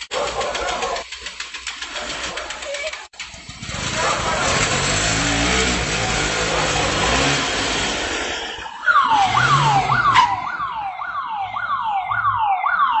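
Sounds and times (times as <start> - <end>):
vehicle engine running: 0.0 - 8.3
road noise: 0.0 - 13.0
electronic siren: 8.4 - 13.0.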